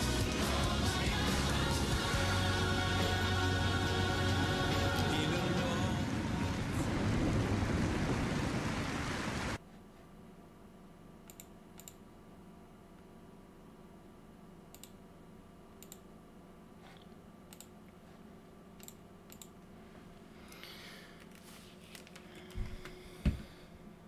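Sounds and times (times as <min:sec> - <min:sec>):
low electrical hum: 0:00.0 - 0:24.0
computer mouse clicks: 0:11.2 - 0:12.0, 0:14.7 - 0:15.0, 0:15.8 - 0:16.1, 0:17.0 - 0:17.8, 0:18.8 - 0:19.6
dull thumps: 0:22.6 - 0:23.6.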